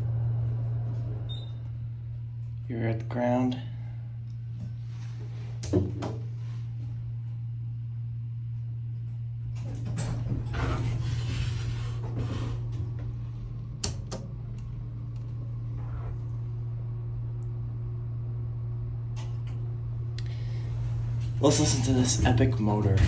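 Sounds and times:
steady low hum: 0:00.0 - 0:23.0
sliding doors rushing: 0:09.7 - 0:13.0
elevator door click: 0:12.2 - 0:16.2.

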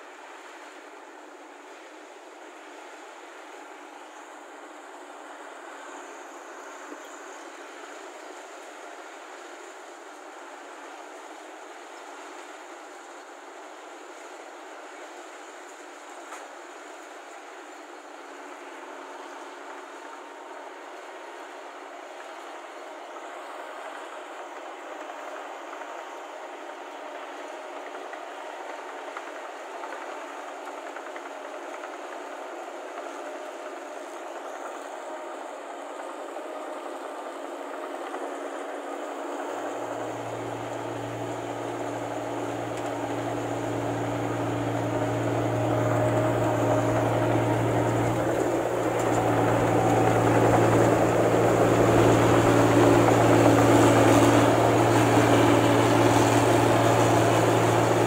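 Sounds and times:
combine harvester rattle and drone: 0:23.2 - 0:58.0
low engine hum: 0:34.1 - 0:58.0.

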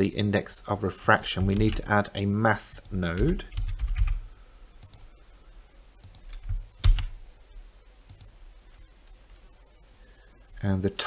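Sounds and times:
computer mouse clicks: 0:04.8 - 0:05.1, 0:06.0 - 0:07.1, 0:08.1 - 0:08.4.

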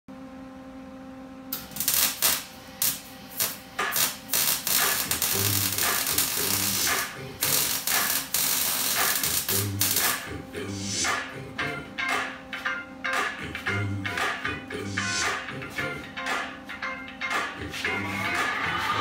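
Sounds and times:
welder arc crackling and hissing: 0:01.5 - 0:11.6, 0:13.6 - 0:16.5
music with steady beat: 0:03.8 - 0:19.0.

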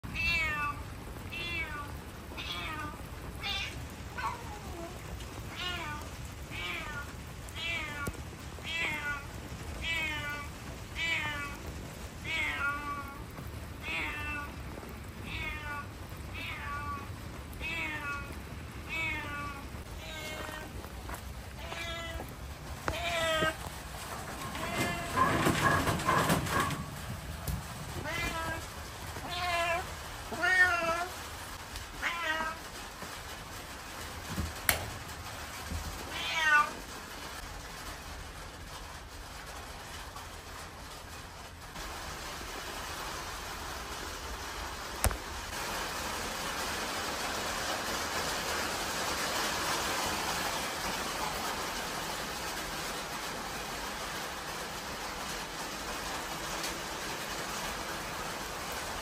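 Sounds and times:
steady background hiss: 0:00.1 - 0:59.0
cat meowing: 0:00.2 - 0:11.6, 0:12.2 - 0:14.6, 0:15.2 - 0:20.8, 0:21.5 - 0:22.3, 0:22.9 - 0:23.6, 0:24.5 - 0:25.3, 0:28.0 - 0:31.1, 0:32.0 - 0:32.6, 0:36.1 - 0:36.8.

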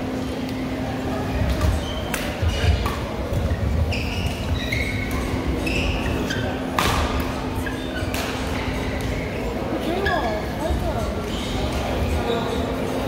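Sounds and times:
shoes squeaking on court: 0:01.4 - 0:11.7
racket hitting shuttlecock: 0:01.5 - 0:03.1, 0:06.7 - 0:07.4, 0:08.1 - 0:09.2.

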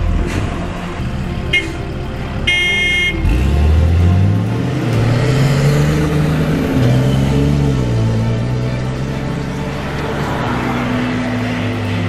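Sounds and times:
vehicle horn beeping: 0:01.4 - 0:03.4
engine revving up: 0:03.2 - 0:12.0.

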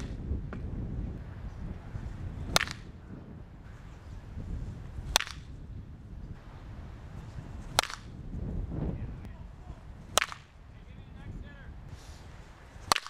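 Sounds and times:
bat cracking baseball: 0:02.5 - 0:03.0, 0:05.0 - 0:05.6, 0:07.6 - 0:08.2, 0:10.1 - 0:10.6, 0:12.8 - 0:13.0.

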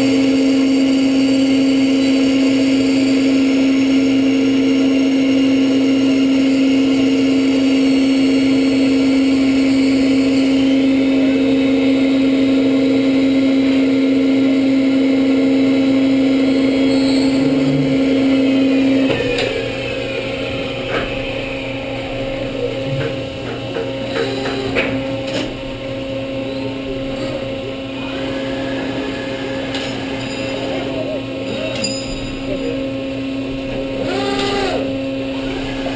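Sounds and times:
drilling machine hum and whine: 0:00.0 - 0:35.9
falling whines: 0:06.0 - 0:12.0, 0:13.0 - 0:25.3, 0:26.1 - 0:32.4, 0:33.9 - 0:35.9.

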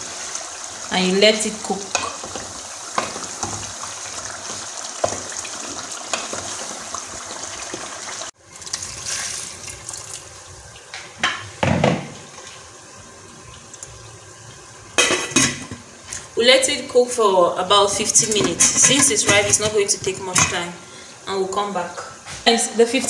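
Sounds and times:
stew simmering and sizzling: 0:00.0 - 0:23.0
water poured from a jug: 0:08.5 - 0:10.4
knocks against a pot: 0:11.2 - 0:12.2.

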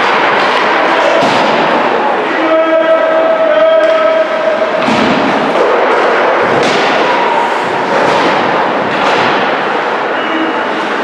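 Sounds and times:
knocks of sticks puck and boards: 0:00.0 - 0:01.8, 0:04.8 - 0:09.8.

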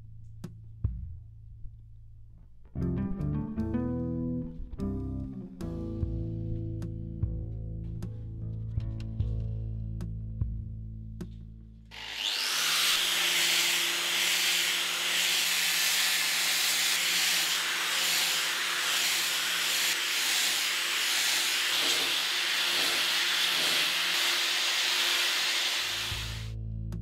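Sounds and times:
angle grinder sanding steel: 0:11.9 - 0:26.5.

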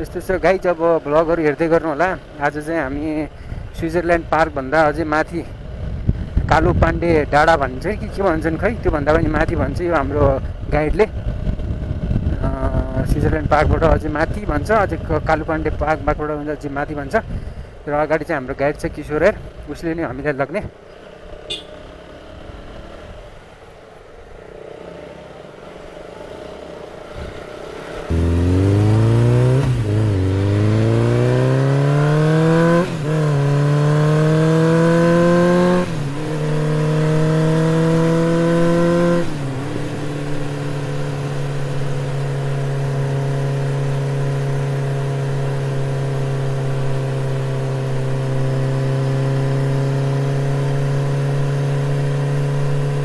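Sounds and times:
motorcycle engine accelerating: 0:11.1 - 0:14.0, 0:26.6 - 0:53.0.

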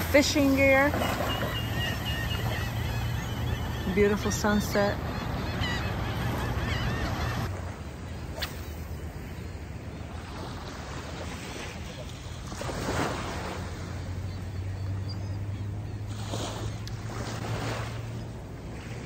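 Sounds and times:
small waves breaking on sand: 0:00.0 - 0:03.2, 0:07.5 - 0:14.2, 0:16.0 - 0:19.0.

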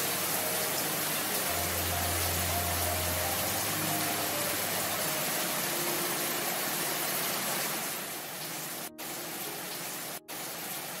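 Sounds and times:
heavy rain on leaves: 0:00.0 - 0:11.0.

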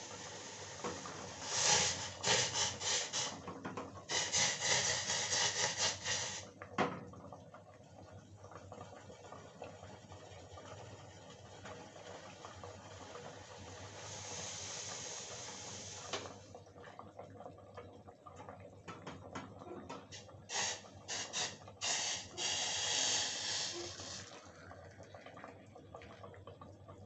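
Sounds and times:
steam hissing and sputtering: 0:00.0 - 0:03.4, 0:04.0 - 0:06.5, 0:13.4 - 0:16.4, 0:20.1 - 0:24.3.

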